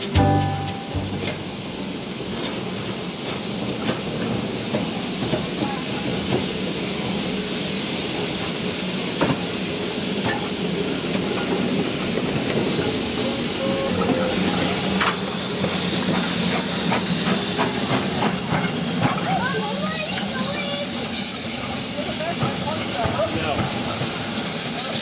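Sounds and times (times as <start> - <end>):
steam hissing: 0.0 - 25.0
steam locomotive moving slowly: 0.0 - 25.0
background music: 0.1 - 1.7.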